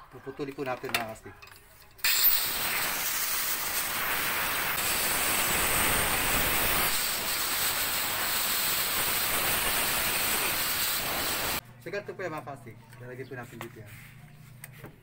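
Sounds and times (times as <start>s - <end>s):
angle grinder cutting pipe: 2.0s - 11.6s.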